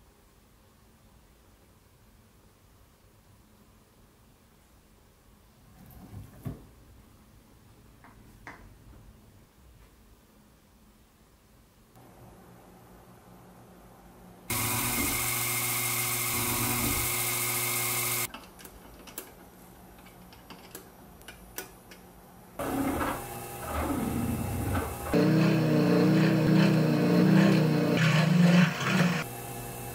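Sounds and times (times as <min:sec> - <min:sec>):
milling machine cutting metal: 0:14.5 - 0:18.3, 0:22.6 - 0:29.9.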